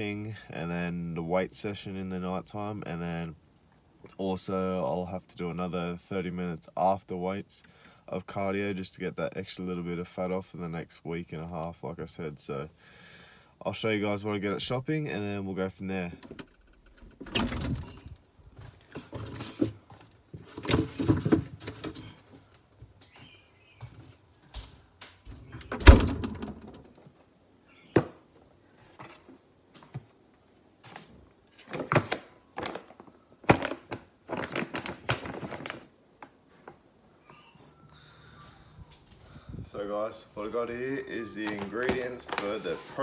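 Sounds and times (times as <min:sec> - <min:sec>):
fridge door opening: 0:17.2 - 0:18.2, 0:25.4 - 0:26.8
packages rustling: 0:31.0 - 0:36.8, 0:41.3 - 0:43.0
packages thunking on a bench: 0:31.6 - 0:35.9.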